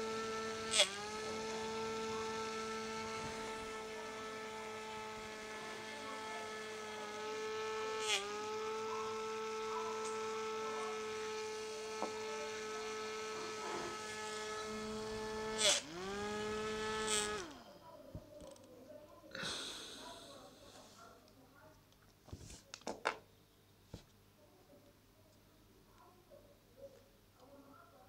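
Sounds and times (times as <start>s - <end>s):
small motor whining: 0.0s - 17.8s
motor clicking: 9.5s - 17.6s.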